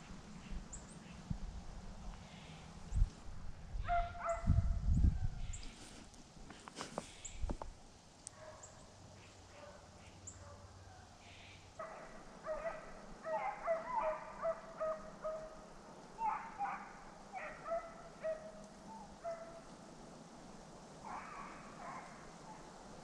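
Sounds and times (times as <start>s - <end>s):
hounds baying: 3.9s - 4.5s, 11.8s - 19.8s, 21.0s - 22.8s.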